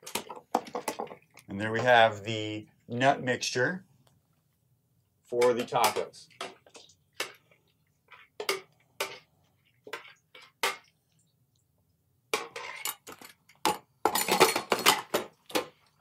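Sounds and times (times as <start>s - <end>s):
spoon tapping and scraping bowl: 5.4s - 11.0s, 12.3s - 14.9s.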